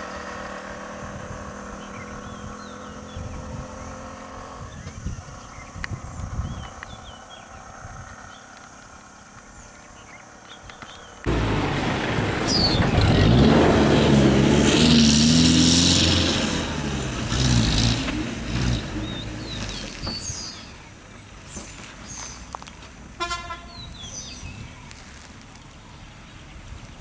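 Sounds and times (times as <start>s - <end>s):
bus engine running: 11.2s - 24.8s
bus horn toot: 23.2s - 23.9s.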